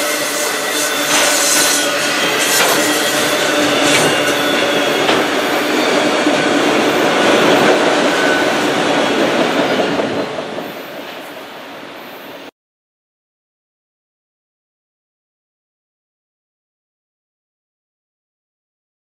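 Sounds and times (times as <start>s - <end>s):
freight cars rumbling and rattling: 0.1s - 11.5s.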